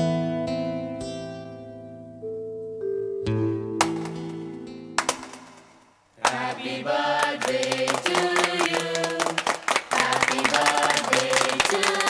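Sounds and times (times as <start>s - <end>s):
people clapping: 5.0s - 5.6s, 6.2s - 12.0s
people singing a birthday song: 6.2s - 12.0s.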